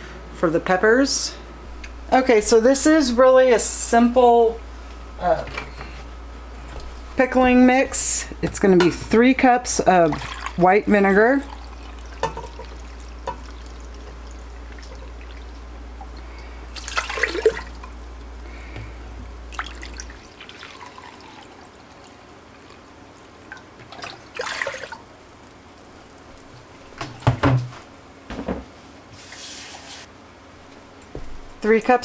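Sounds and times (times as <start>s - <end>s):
liquid splashing and trickling: 11.2s - 18.0s, 19.5s - 27.4s.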